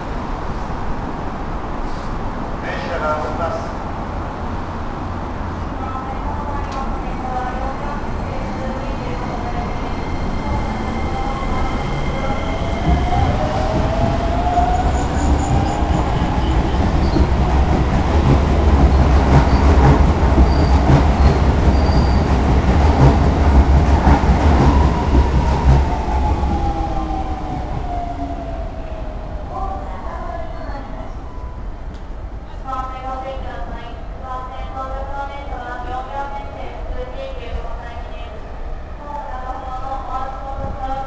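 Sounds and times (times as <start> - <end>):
train wheels rumbling on rails: 8.0 - 28.6.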